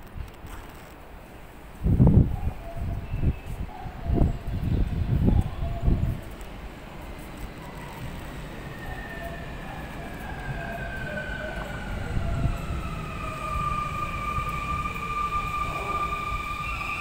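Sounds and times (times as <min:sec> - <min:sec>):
wheels rumbling on rail: 0:04.0 - 0:17.0.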